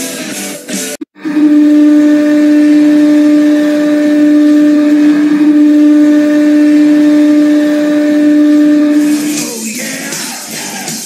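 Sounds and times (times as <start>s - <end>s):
long goal horn blast: 1.0s - 9.5s.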